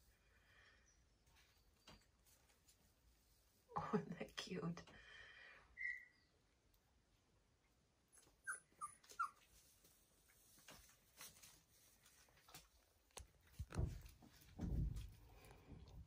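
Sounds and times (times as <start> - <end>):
puppy whimpering: 8.1 - 9.5.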